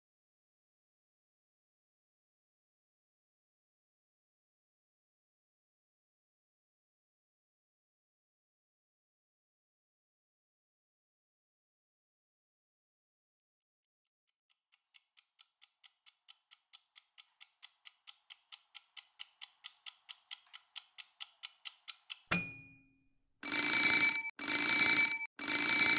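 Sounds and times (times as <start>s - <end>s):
timer clock ticking: 14.5s - 22.8s, 23.4s - 25.9s
sharp ding: 22.3s - 23.0s
alarm bell ringing: 23.4s - 25.9s.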